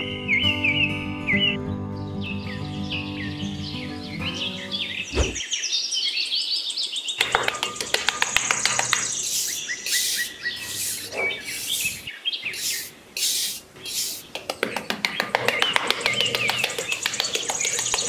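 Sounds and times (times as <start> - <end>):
birds chirping: 0.0 - 18.0
trowel scraping sand: 9.3 - 14.2.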